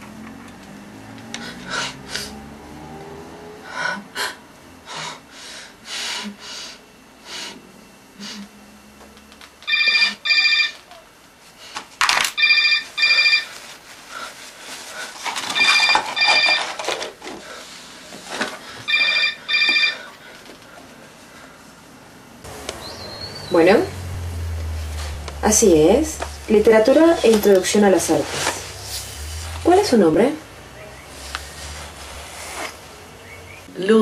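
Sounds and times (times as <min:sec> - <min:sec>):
mobile phone ringing: 0:09.6 - 0:11.0, 0:12.4 - 0:13.6, 0:15.5 - 0:17.0, 0:18.8 - 0:20.2
paper rustling: 0:13.4 - 0:18.8, 0:31.1 - 0:32.9.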